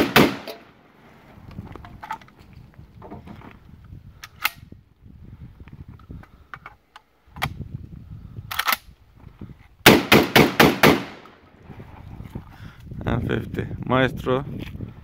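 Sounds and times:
shotgun action clicking: 8.5 - 8.9.

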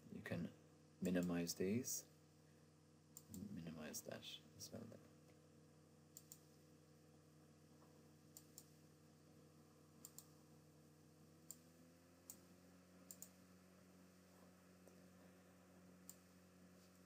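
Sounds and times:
faint steady hum: 0.0 - 17.0
computer mouse button clicks: 13.1 - 13.3.

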